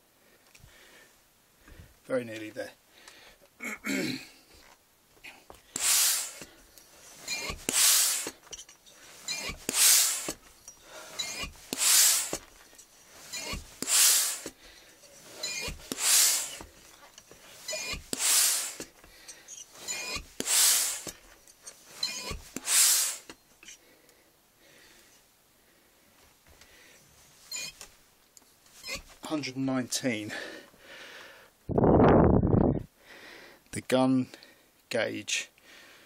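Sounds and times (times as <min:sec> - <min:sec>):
hand pump knock and air hiss: 0:05.7 - 0:06.5, 0:07.2 - 0:08.6, 0:09.2 - 0:10.4, 0:11.1 - 0:12.6, 0:13.3 - 0:14.6, 0:15.4 - 0:16.8, 0:17.6 - 0:19.0, 0:19.8 - 0:21.2, 0:22.0 - 0:23.4.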